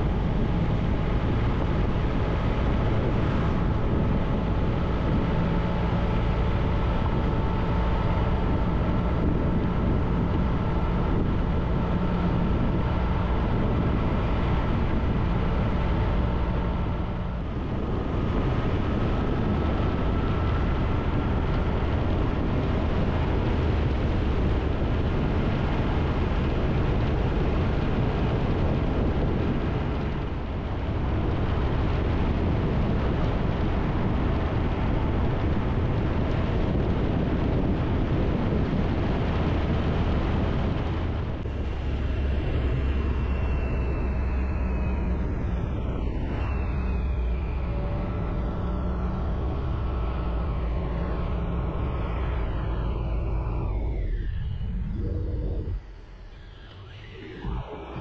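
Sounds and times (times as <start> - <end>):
wind rush: 0.0 - 58.0
faint rising tone: 51.3 - 58.0.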